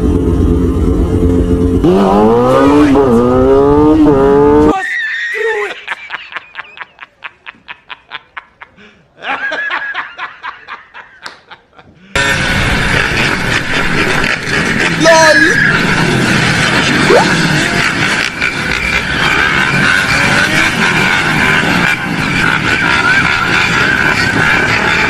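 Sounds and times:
motorcycle engine revving: 0.0 - 4.7, 12.2 - 15.1, 15.7 - 25.0
man laughing: 5.2 - 12.2.

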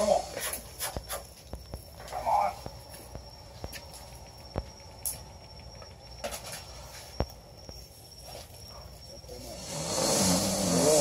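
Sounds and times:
night insects droning: 0.0 - 11.0.

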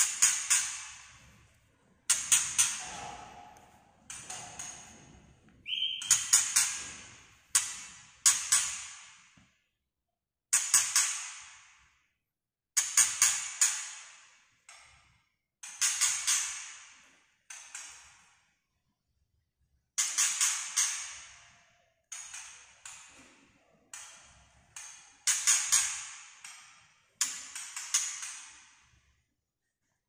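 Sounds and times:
short whistled bird note: 5.6 - 6.4
bird clicking alarm calls: 5.6 - 6.6.

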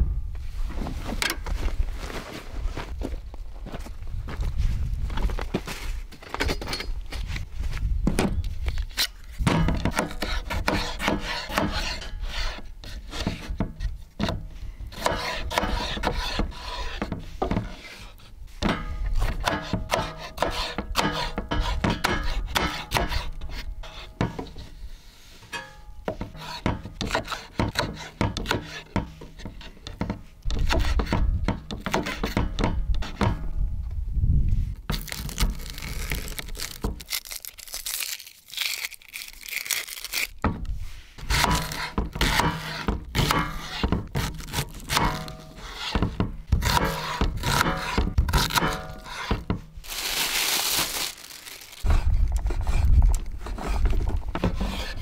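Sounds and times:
knife slicing vegetables: 41.2 - 50.0.

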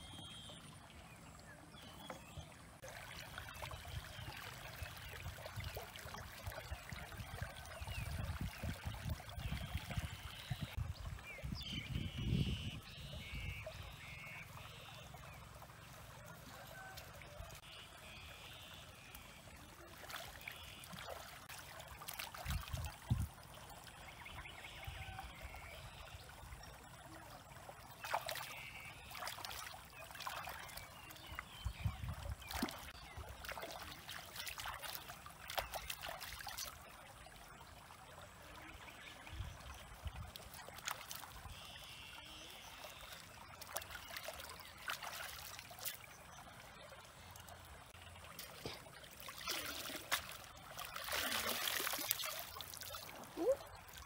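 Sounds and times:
water trickling and dripping: 0.0 - 54.0
hands splashing in stream water: 43.0 - 46.3, 48.3 - 54.0.

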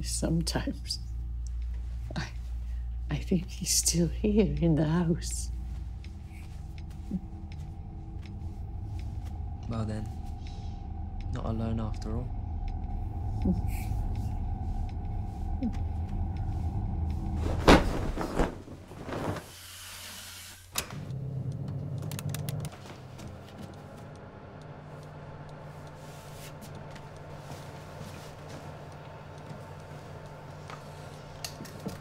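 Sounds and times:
low rumbling drone: 0.0 - 19.3
steady low hum: 0.0 - 19.6, 20.6 - 32.0.

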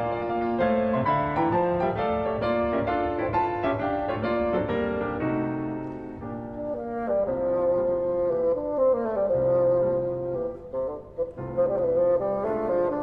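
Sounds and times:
piano playing quick runs: 0.0 - 6.6.

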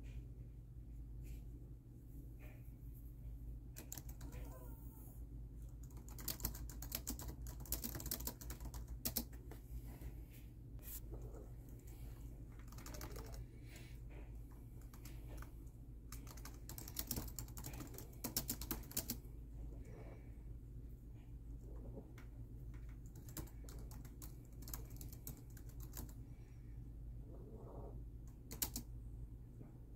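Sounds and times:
typing on laptop keyboard: 3.8 - 4.5, 5.7 - 9.5, 12.5 - 13.4, 14.8 - 15.5, 16.1 - 19.2, 22.7 - 26.2, 28.3 - 28.9.

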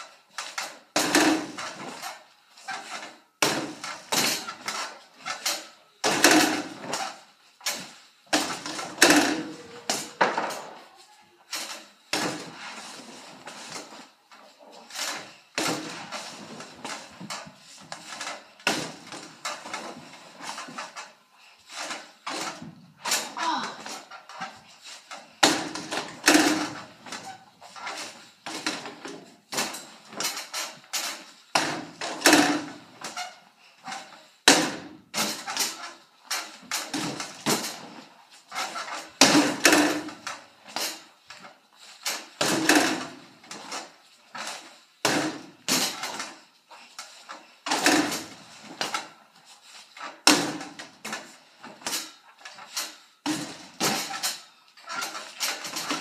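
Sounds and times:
basketballs knocking on hoops: 0.4 - 2.1, 2.7 - 10.8, 11.6 - 12.8, 14.9 - 21.0, 25.4 - 33.3, 33.9 - 38.0, 38.6 - 41.0, 42.1 - 43.8, 44.4 - 46.4, 47.7 - 49.1, 50.2 - 52.1, 52.7 - 56.0.

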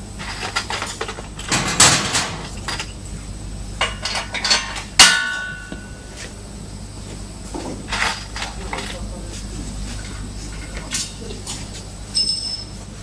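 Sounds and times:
metal tools clinking on steel: 0.2 - 3.2, 3.8 - 5.9, 7.9 - 9.0, 12.1 - 12.8
loud sharp metal clink: 3.8 - 6.0.

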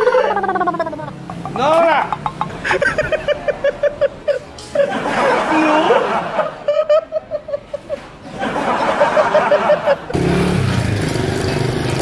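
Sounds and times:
person chuckling: 0.0 - 6.2
street noise: 0.0 - 12.0.

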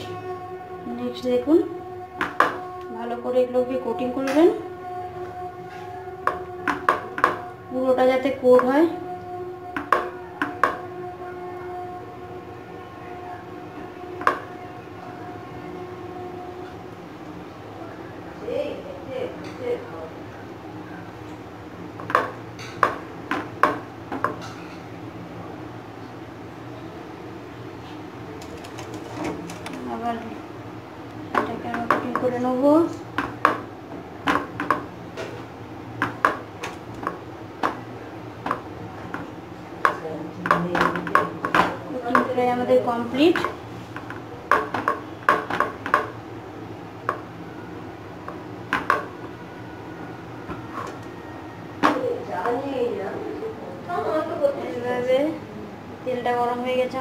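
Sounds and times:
low steady hum: 0.0 - 57.0
knock on ceramic plate: 6.2 - 7.4
clicks and taps on a plate: 6.3 - 7.4, 9.8 - 10.8, 34.2 - 34.9, 48.3 - 49.1.

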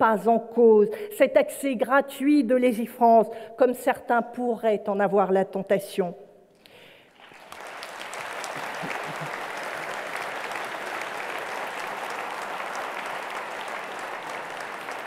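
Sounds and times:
audience applauding: 7.1 - 15.0.

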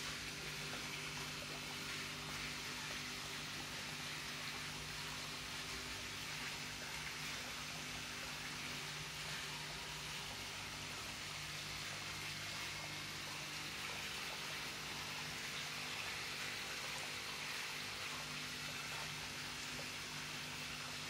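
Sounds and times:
bubbling water hiss: 0.0 - 21.0.

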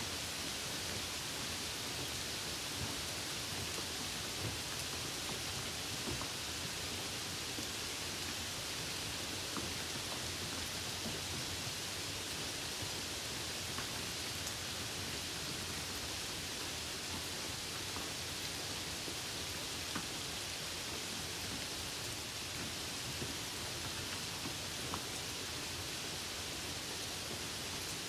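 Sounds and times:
rain hiss on wet road: 0.0 - 28.0.

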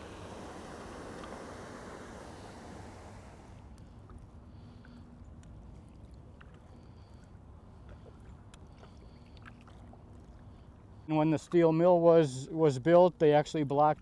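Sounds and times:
water gushing from culvert: 0.0 - 3.6.

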